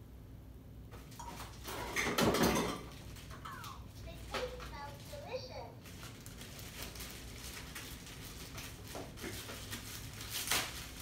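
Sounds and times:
packaging rustling: 4.4 - 11.0.

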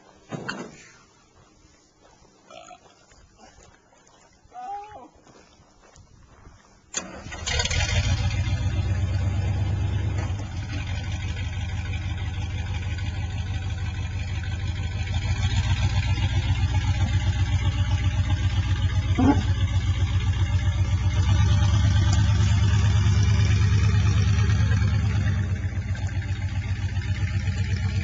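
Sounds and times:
truck engine running: 7.0 - 28.0.

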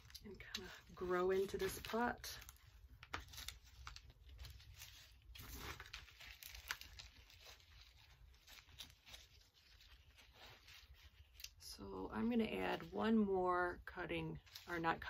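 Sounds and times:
small clicks and crackles: 0.0 - 11.6.

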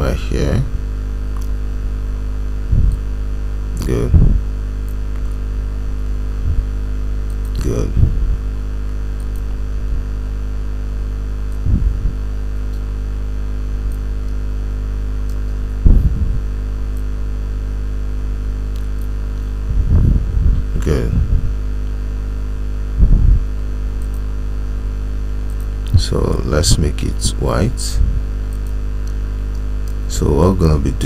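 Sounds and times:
electrical mains hum: 0.0 - 31.0
brief low bursts: 2.6 - 3.2, 11.5 - 12.4.

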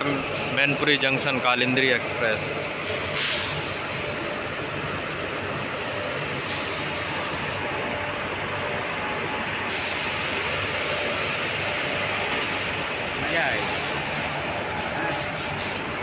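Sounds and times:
continuous hiss: 13.1 - 16.0.

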